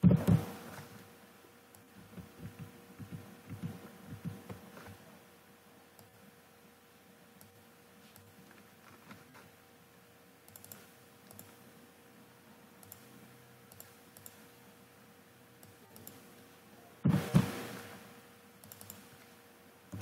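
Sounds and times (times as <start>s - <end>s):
low electrical hum: 0.0s - 20.0s
computer mouse clicks: 6.0s - 6.2s, 10.5s - 11.6s, 12.8s - 13.1s, 13.7s - 14.5s, 15.6s - 16.3s, 18.6s - 19.3s.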